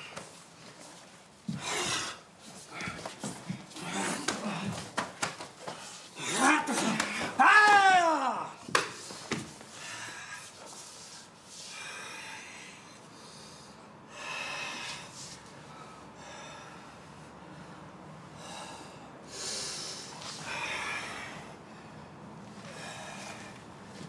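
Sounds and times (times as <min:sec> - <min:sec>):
person breathing heavily: 0:09.0 - 0:24.0.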